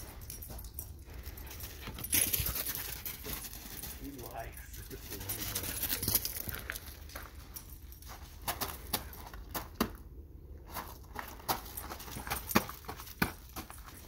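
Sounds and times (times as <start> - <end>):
footsteps crunching on gravel: 0.0 - 9.2.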